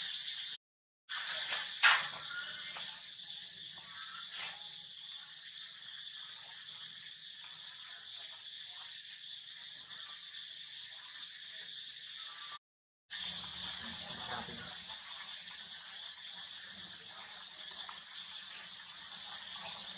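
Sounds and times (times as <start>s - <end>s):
high-pitched hiss: 0.0s - 7.0s, 18.4s - 18.8s.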